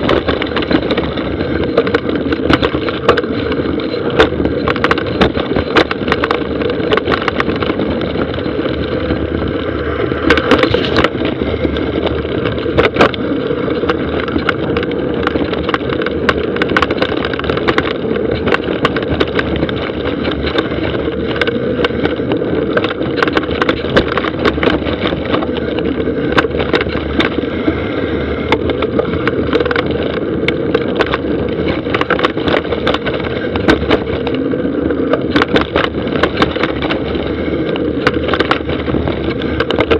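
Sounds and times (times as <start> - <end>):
bike rattling over bumps: 0.0 - 39.9
bike tyres rolling on dirt: 0.0 - 39.9.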